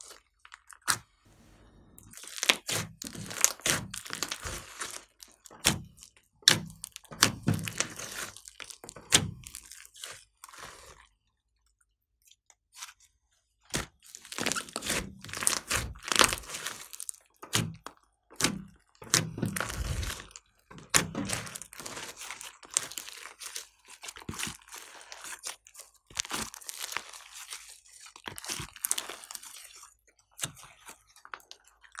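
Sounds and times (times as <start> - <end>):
slime squished by hands: 2.0 - 11.8, 12.6 - 32.0.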